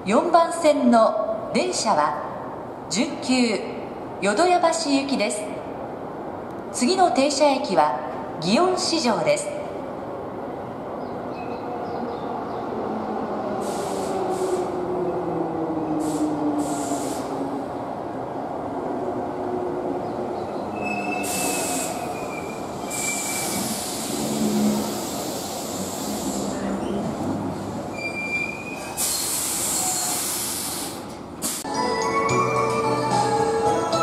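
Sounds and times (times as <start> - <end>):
wheel and brake squeals: 20.8 - 23.7, 27.9 - 30.2.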